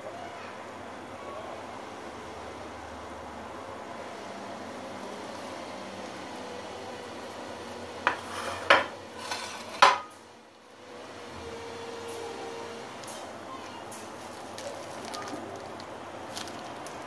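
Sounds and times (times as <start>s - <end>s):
glass dishes clinking: 8.1s - 10.1s.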